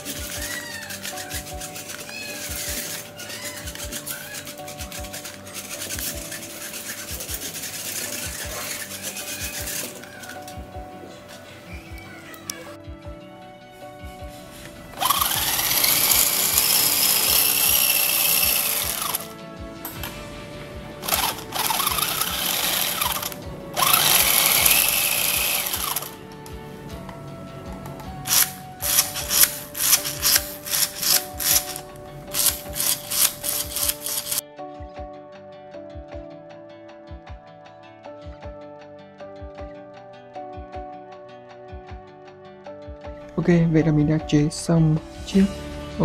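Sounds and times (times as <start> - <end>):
toy car motor whirring: 0.0 - 10.6, 15.0 - 19.3, 21.0 - 26.2, 28.2 - 34.4
background music: 0.0 - 46.0.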